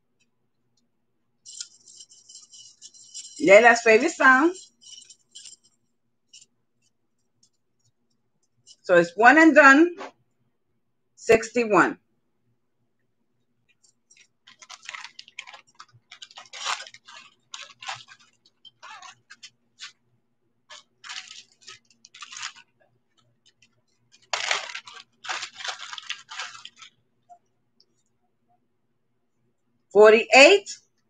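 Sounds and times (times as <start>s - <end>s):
bangle bracelets clinking: 1.5s - 7.6s, 13.8s - 20.0s, 23.5s - 27.4s.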